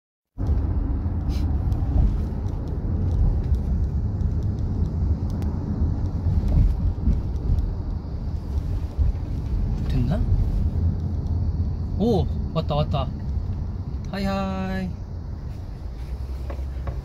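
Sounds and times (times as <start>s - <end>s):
car road rumble inside cabin: 0.4s - 17.0s.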